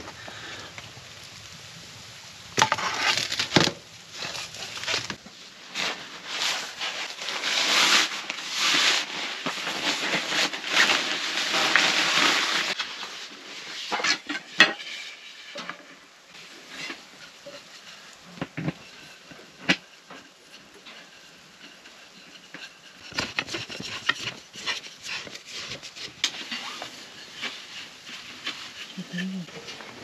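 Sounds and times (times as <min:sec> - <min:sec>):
wooden parts knocking and scraping: 0:19.4 - 0:30.0.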